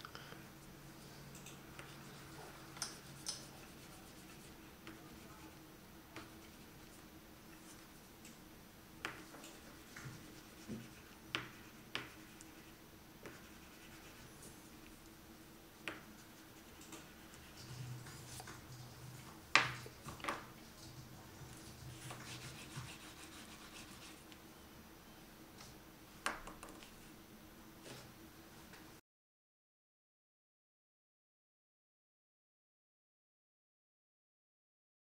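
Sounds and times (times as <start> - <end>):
crayon rubbing on paper: 1.8 - 5.6, 9.3 - 14.5, 16.2 - 18.9, 21.3 - 24.3.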